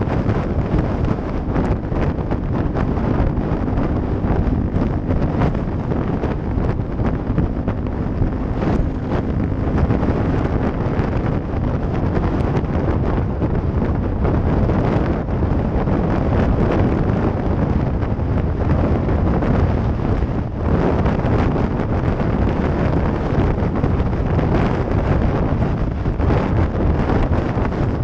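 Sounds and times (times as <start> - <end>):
motorcycle engine: 0.0 - 28.0
wind buffeting microphone: 0.0 - 28.0.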